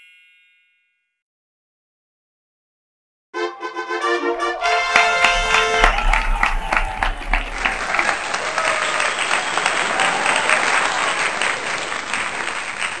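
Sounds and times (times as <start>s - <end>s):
crowd applauding: 3.4s - 13.0s.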